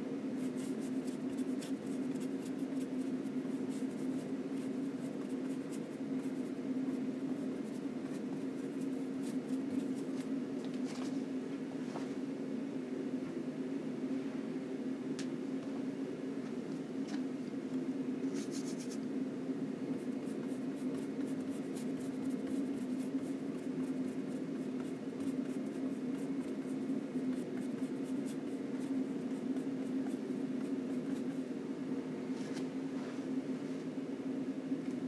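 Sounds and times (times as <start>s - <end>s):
steady low hum: 0.0s - 35.0s
brush scratching on panel: 0.4s - 10.3s, 18.3s - 19.0s, 20.0s - 31.4s.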